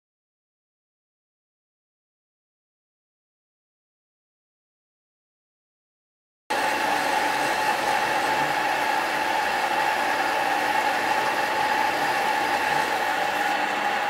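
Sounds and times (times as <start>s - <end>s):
bandsaw cutting metal tube: 6.5s - 14.0s.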